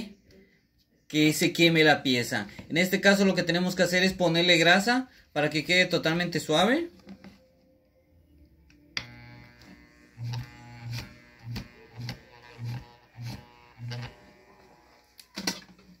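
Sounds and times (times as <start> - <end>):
stalled fan motor buzzing: 9.0 - 15.1.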